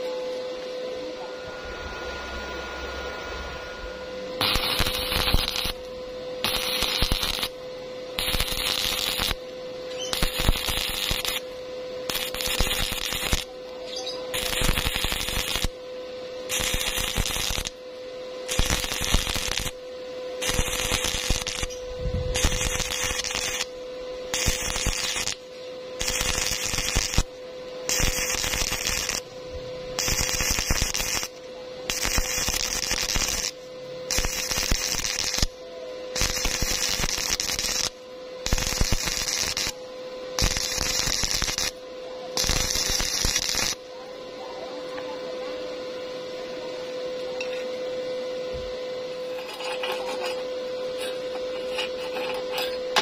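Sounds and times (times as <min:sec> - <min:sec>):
steady hum: 0:00.0 - 0:53.0
welding arc crackling: 0:04.4 - 0:11.4, 0:12.0 - 0:13.5, 0:14.3 - 0:15.8, 0:16.5 - 0:17.8, 0:18.4 - 0:19.8, 0:20.4 - 0:25.4, 0:26.0 - 0:39.8, 0:40.4 - 0:41.8, 0:42.4 - 0:43.8.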